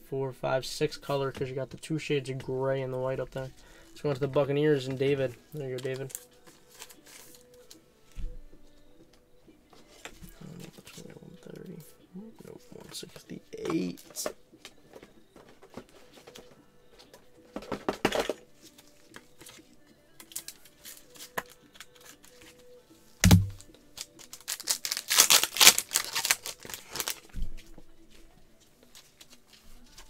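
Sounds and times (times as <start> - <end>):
faint background music: 0.0 - 30.0
cards and sleeves rustling: 2.8 - 7.8, 9.7 - 11.9, 12.5 - 22.7, 23.3 - 30.0
thud on table: 23.2 - 23.6.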